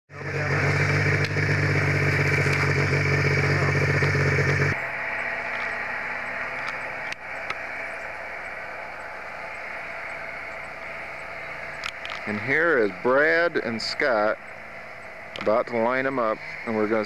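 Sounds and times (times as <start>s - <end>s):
low hum: 0.1s - 17.0s
snowmobile engine running: 0.1s - 17.0s
sharp clicks: 6.6s - 8.1s, 10.1s - 12.4s, 13.5s - 16.7s.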